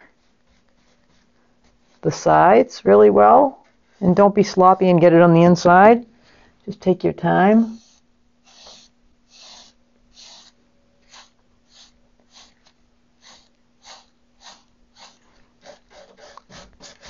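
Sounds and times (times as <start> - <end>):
paintbrush swishing on wood: 0.0 - 2.8, 7.5 - 17.0.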